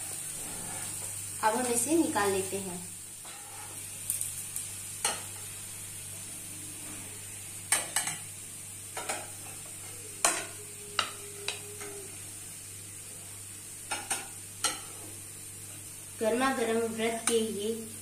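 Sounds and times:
oil sizzling faintly: 0.0 - 18.0
metal spatula scraping a griddle: 0.3 - 1.1, 3.2 - 3.8.

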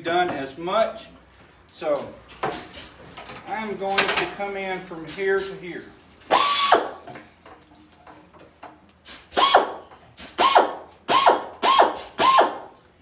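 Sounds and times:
pneumatic ring gun firing: 6.3 - 7.0, 9.0 - 12.8.

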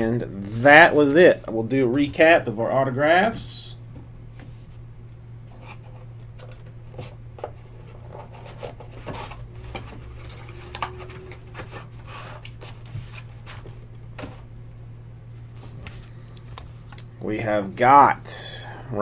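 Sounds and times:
steady low hum: 0.0 - 19.0
cards clicking and rustling: 6.4 - 14.4.

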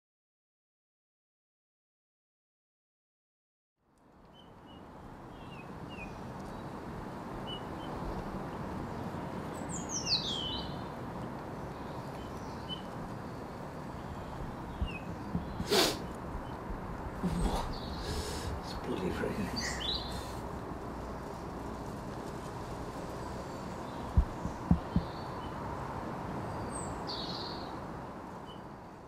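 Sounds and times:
steady background hiss: 4.0 - 29.0
birds chirping: 4.3 - 21.5, 23.1 - 25.7, 26.4 - 27.8.

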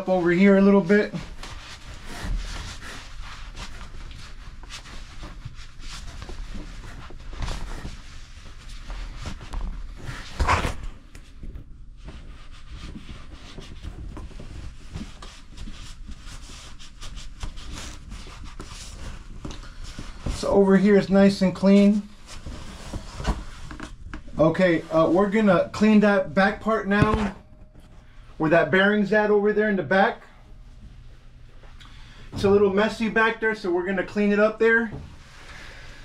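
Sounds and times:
cloth rag rubbing and wiping: 0.0 - 27.5.

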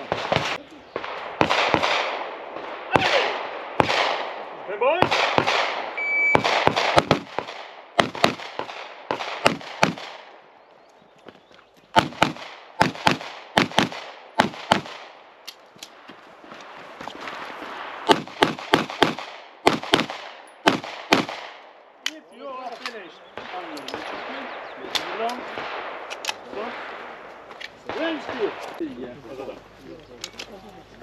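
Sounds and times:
gunshots: 0.0 - 10.5, 11.9 - 21.8, 22.8 - 28.8
electronic timer beep: 6.0 - 6.4.

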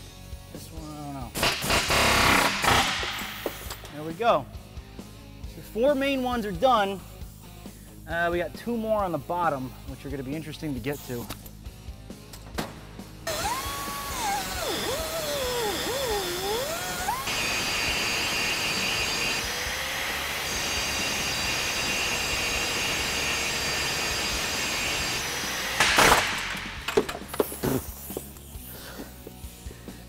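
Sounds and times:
angle grinder cutting steel: 13.3 - 26.7.

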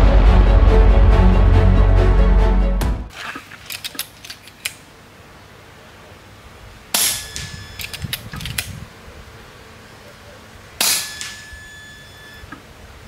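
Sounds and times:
rifle clicks: 3.6 - 4.9, 7.4 - 8.8
air rifle shots: 6.9 - 8.7, 10.8 - 11.7
thin steady whistle: 11.4 - 12.5.

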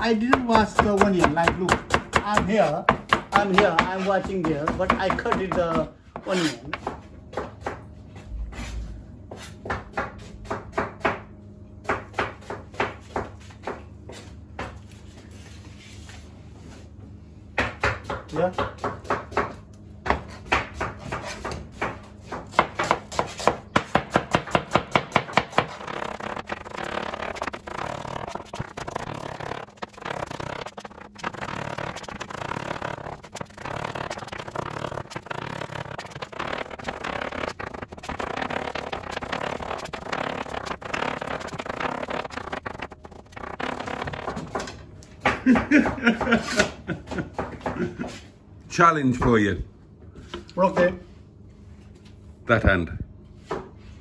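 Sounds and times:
knife chopping on wooden board: 0.3 - 7.8, 17.6 - 25.9.

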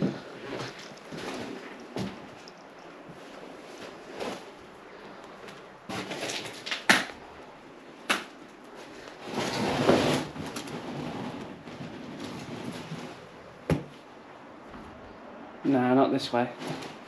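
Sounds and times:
scraping shuffle: 0.0 - 6.6, 8.7 - 13.4, 16.6 - 17.0
rustling: 0.0 - 15.0, 16.5 - 17.0.

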